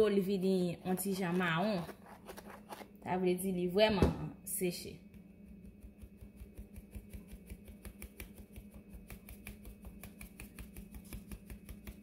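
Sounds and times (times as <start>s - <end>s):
sieve shaking with light ticks: 5.1s - 12.0s.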